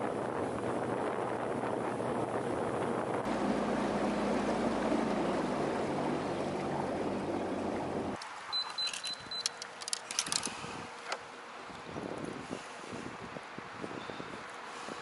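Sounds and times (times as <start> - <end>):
motorboat engine: 0.0 - 8.2
water rushing past: 3.2 - 8.5.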